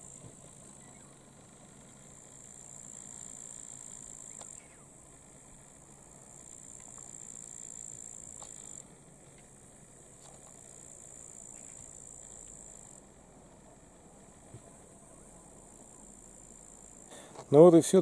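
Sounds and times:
distant motorboat engine hum: 0.0s - 18.0s
insects chirring: 0.0s - 18.0s.

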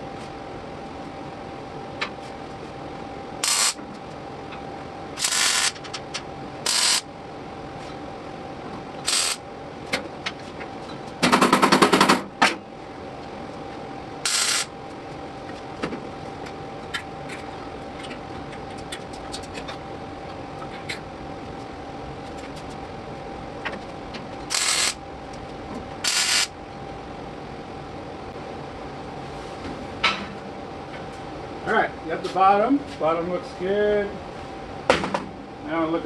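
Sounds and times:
welder crackling bursts: 3.4s - 3.8s, 5.2s - 5.8s, 6.6s - 7.1s, 9.0s - 9.4s, 14.2s - 14.7s, 24.5s - 25.0s, 26.0s - 26.5s.

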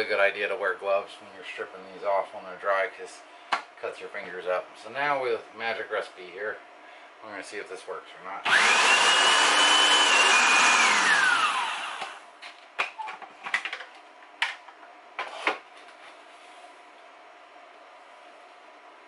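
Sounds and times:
food processor motor whining: 8.4s - 12.2s.

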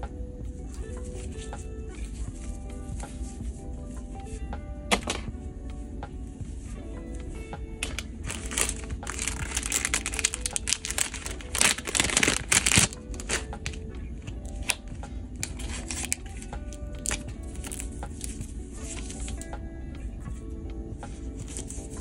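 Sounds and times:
background music: 0.0s - 22.0s
plastic packaging crinkling: 7.8s - 13.8s, 14.5s - 14.8s, 15.4s - 19.5s.

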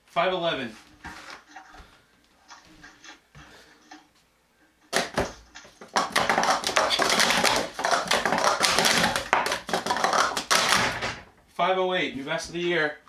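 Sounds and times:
plastic cups clattering: 4.9s - 11.4s.

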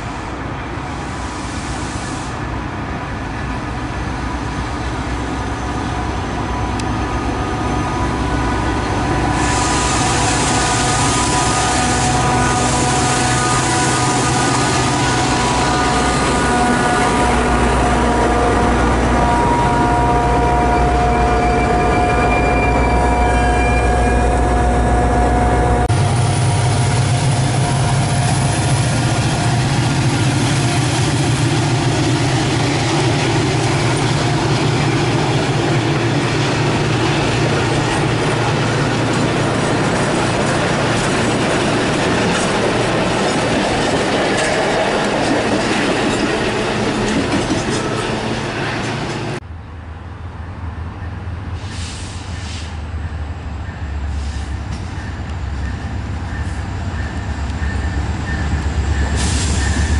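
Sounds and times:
diesel locomotive engine hum: 0.0s - 59.9s
train coaches rumbling: 0.0s - 59.9s.

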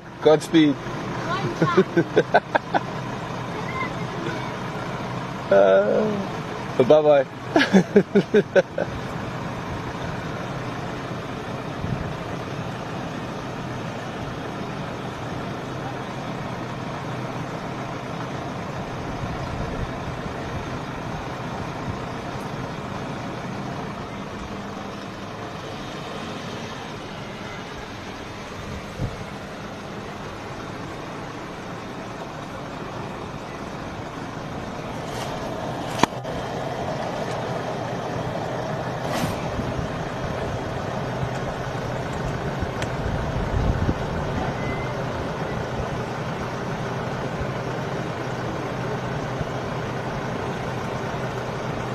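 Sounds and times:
vehicle engines idling: 0.0s - 51.9s
short hisses: 39.0s - 39.6s.

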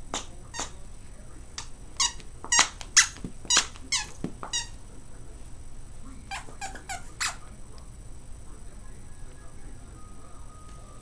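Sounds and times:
dog toy squeaking: 0.1s - 0.8s, 2.0s - 4.8s, 6.3s - 7.4s.

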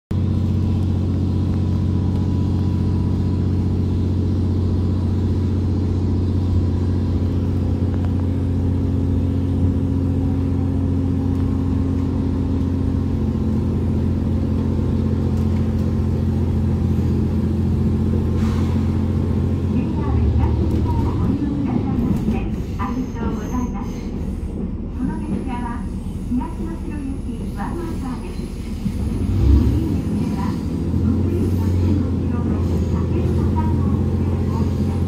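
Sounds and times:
train engine low hum: 0.1s - 35.0s.

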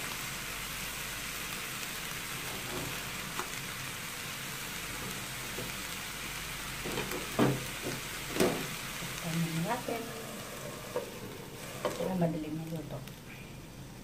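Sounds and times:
food sizzling in a wok: 0.0s - 14.0s.

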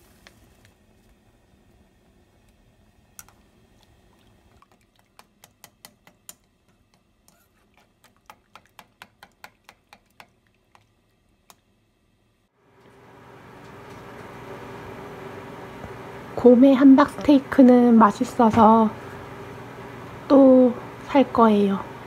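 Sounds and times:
utensil clicking against frying pan: 5.1s - 7.1s, 8.0s - 10.9s.

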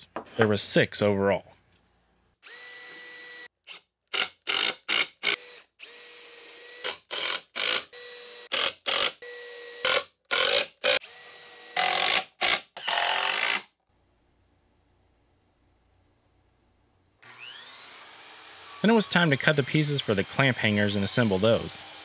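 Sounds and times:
cordless drill whirring: 2.4s - 3.5s, 4.5s - 12.2s, 17.2s - 20.8s.

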